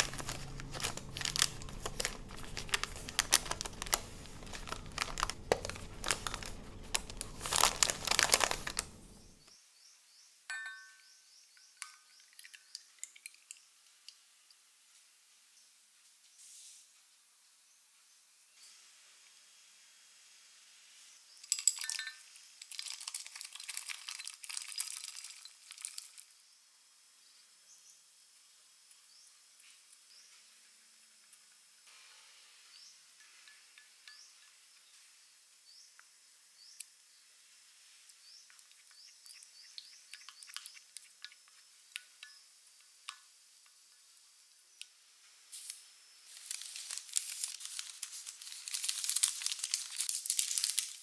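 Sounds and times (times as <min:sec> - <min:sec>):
chocolate pieces clinking against glass: 0:00.0 - 0:09.2, 0:21.4 - 0:26.2.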